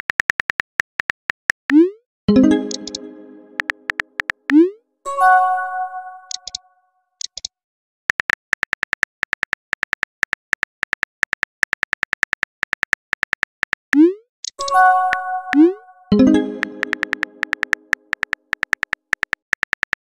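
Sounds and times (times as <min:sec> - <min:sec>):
message chime: 0:02.3 - 0:04.0, 0:05.1 - 0:06.4, 0:14.6 - 0:17.9
virtual keyboard tap clicks: 0:02.5 - 0:04.5, 0:16.6 - 0:20.0.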